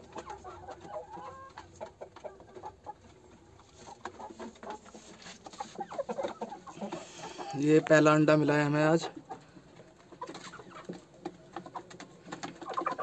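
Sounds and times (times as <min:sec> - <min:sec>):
hens clucking softly: 0:00.0 - 0:13.0.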